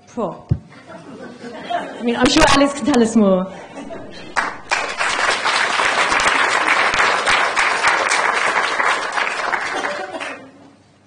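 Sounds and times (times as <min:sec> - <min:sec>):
audience applauding: 0:03.8 - 0:10.5.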